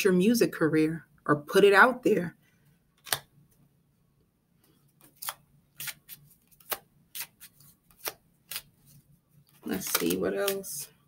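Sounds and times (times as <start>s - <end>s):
cards snapping: 3.0s - 3.3s, 5.0s - 8.7s, 9.8s - 10.7s.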